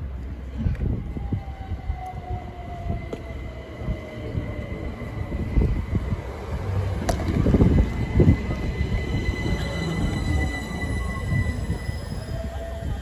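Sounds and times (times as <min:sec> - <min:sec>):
train rumble: 0:00.0 - 0:13.0
train whine falling in pitch: 0:06.6 - 0:13.0.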